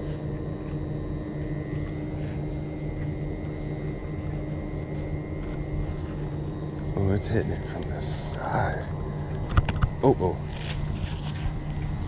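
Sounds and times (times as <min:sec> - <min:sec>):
low mechanical rumble: 0:00.0 - 0:12.0
thin high whine: 0:00.0 - 0:12.0.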